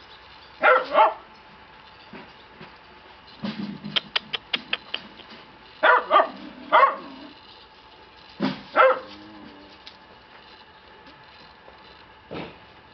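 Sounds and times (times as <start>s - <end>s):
puppies barking: 0.6s - 1.3s, 5.8s - 7.3s, 8.7s - 9.2s.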